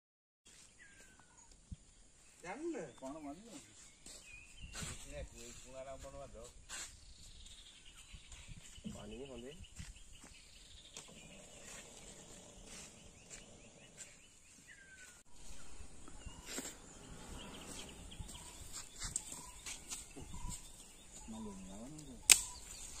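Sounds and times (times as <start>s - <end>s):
bird calls: 0.5s - 23.0s
sharp click: 22.2s - 22.8s.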